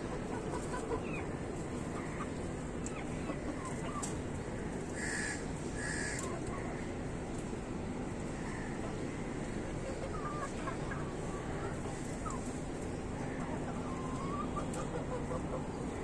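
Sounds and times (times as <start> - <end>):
chickens clucking and chirping: 0.0 - 16.0
loud harsh chicken calls: 4.9 - 6.3.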